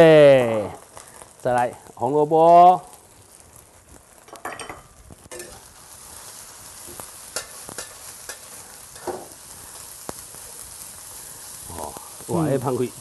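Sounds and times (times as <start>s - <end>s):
food sizzling in hot oil: 0.0s - 13.0s
metal spatula scraping wok: 4.6s - 5.7s.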